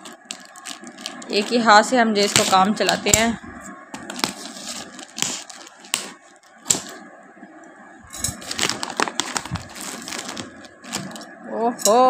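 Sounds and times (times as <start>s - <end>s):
plastic rustling: 0.0s - 3.3s, 4.0s - 7.0s, 8.3s - 11.4s
scissors snipping plastic: 2.3s - 3.3s.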